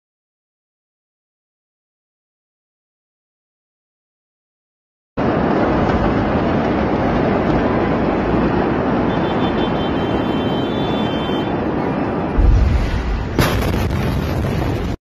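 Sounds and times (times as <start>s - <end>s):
large fire roaring: 5.2s - 9.2s, 11.6s - 15.0s.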